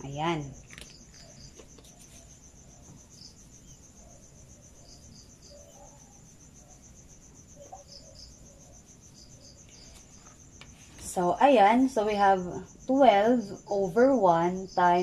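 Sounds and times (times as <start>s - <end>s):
cricket chirping: 0.0s - 15.0s.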